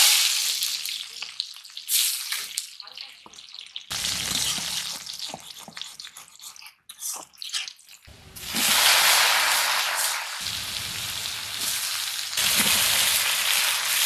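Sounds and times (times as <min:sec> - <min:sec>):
food sizzling in oil: 0:00.0 - 0:05.3, 0:08.1 - 0:14.0.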